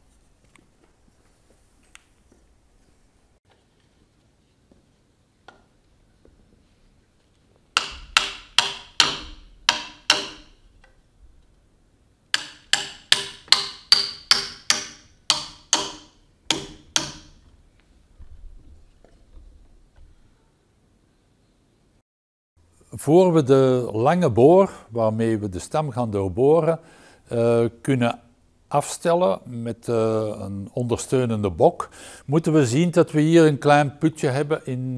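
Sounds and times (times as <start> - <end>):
hammer driving nails into wood: 7.8 - 10.6, 12.3 - 17.4.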